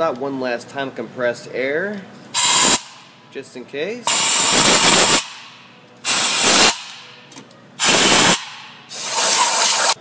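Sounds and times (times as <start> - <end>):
compressed air blow gun hissing: 6.1 - 6.8, 7.8 - 10.0.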